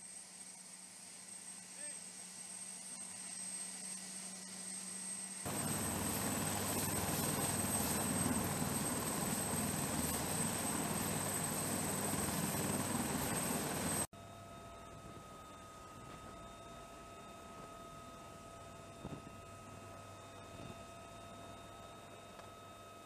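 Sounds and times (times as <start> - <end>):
helicopter engines whining: 5.5 - 14.1
helicopter rotor beating: 5.5 - 14.1.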